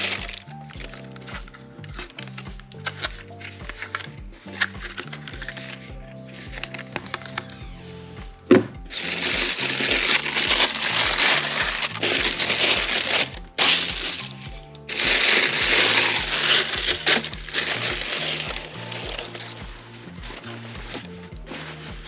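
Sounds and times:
background music with beat: 0.0 - 22.0
tissue paper crinkling: 8.9 - 19.6.

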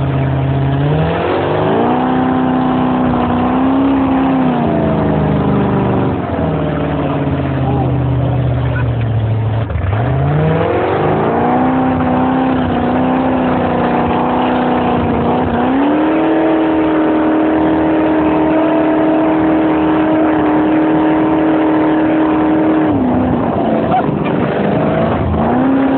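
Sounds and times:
boat engine running hard: 0.0 - 25.9.

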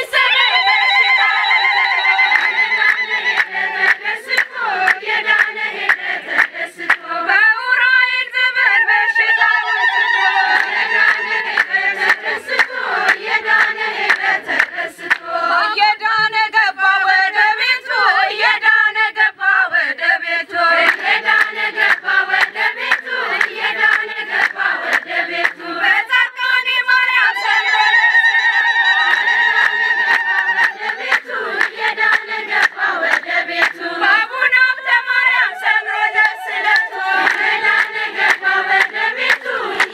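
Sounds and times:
women singing a hymn: 0.0 - 39.9
hand claps: 2.3 - 7.0, 10.6 - 15.3, 20.9 - 25.6, 29.1 - 33.8, 36.6 - 39.9.

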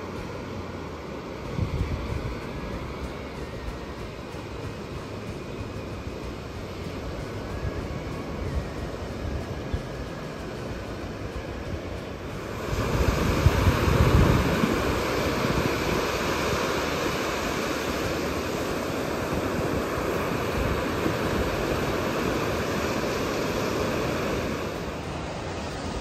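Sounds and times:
heavy low rumble of surf: 0.0 - 26.0
ocean surf washing onto beach: 0.0 - 26.0.

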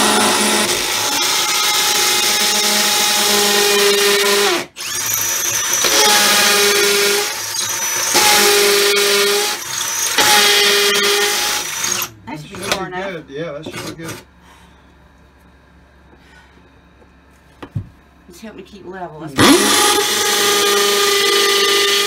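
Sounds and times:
hammer drill boring into wall: 0.0 - 12.1, 19.4 - 22.0.

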